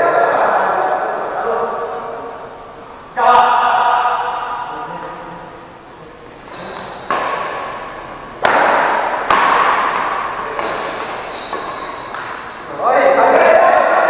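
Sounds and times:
shoe squeaks: 0:06.4 - 0:07.8, 0:09.5 - 0:12.9
racket hitting shuttlecock: 0:06.4 - 0:12.7.

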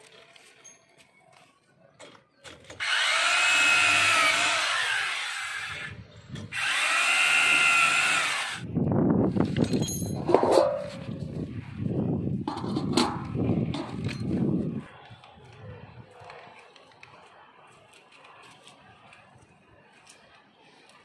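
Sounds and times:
electric drill boring into wall: 0:02.8 - 0:08.6.

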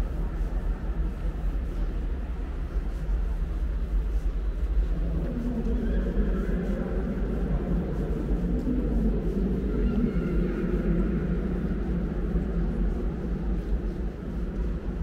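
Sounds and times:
faint echoing murmur: 0:00.0 - 0:15.0
low rumble of background noise: 0:00.0 - 0:15.0.

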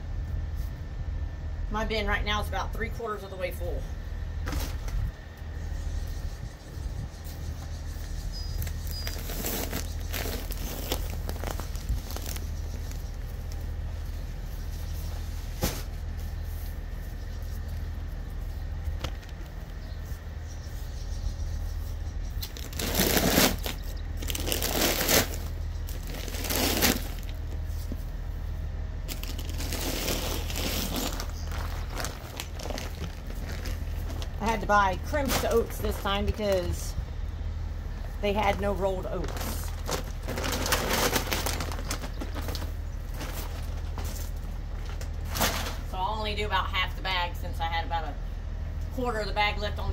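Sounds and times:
steady low hum: 0:00.0 - 0:49.9
feed sack rustling and crinkling: 0:08.6 - 0:17.8, 0:22.4 - 0:36.4, 0:38.1 - 0:45.9.

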